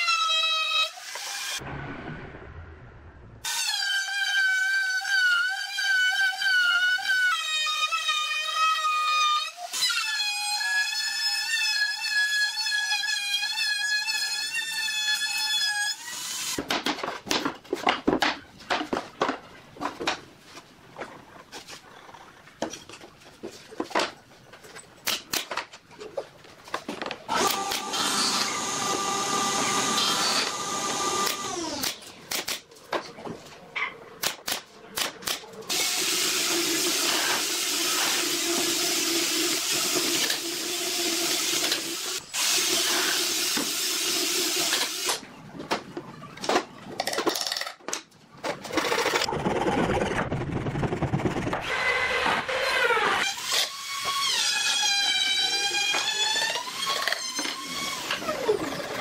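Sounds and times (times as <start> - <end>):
knocks of boards being handled: 16.6 - 21.1
drill boring into wood: 27.3 - 31.9, 51.6 - 59.0.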